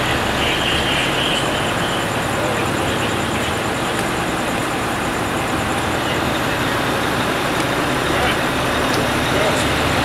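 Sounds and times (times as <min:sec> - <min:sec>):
fire engine diesel idling: 0:00.0 - 0:10.0
rapidly pulsing high whine: 0:00.0 - 0:10.0.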